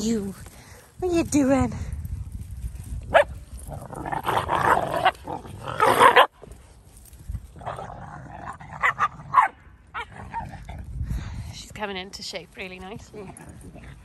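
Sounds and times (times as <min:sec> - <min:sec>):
dogs growling: 0:03.6 - 0:06.3, 0:07.5 - 0:10.9
dogs barking: 0:08.8 - 0:10.4.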